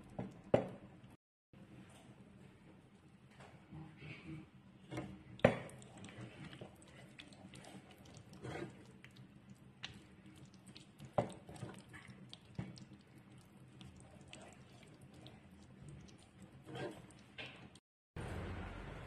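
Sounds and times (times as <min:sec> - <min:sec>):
food squelching while stirred: 0:05.2 - 0:17.8.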